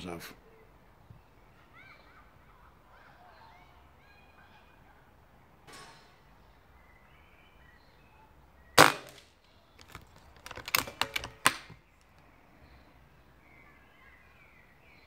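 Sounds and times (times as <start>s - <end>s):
air rifle shot: 8.8s - 9.3s
rifle action clicks: 9.8s - 11.8s.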